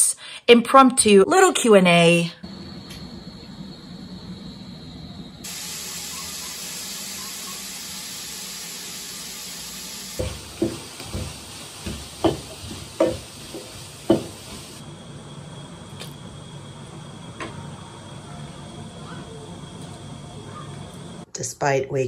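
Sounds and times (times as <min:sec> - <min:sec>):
steady hiss: 0:02.5 - 0:15.7
wooden spoon knocking on metal pot: 0:10.2 - 0:14.6.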